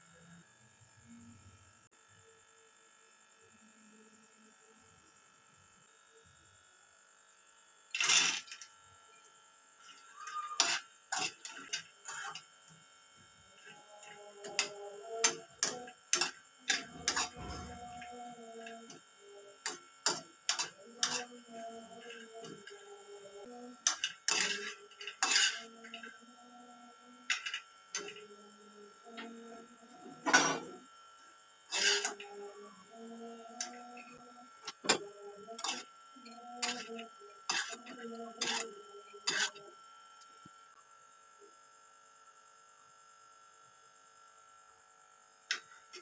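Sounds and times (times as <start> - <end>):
low buzzing hum: 0.0 - 46.0
spoon scraping frying pan: 10.2 - 12.4, 13.6 - 19.0, 19.6 - 21.3, 23.8 - 26.2, 31.7 - 32.3, 35.6 - 35.8, 36.6 - 39.6.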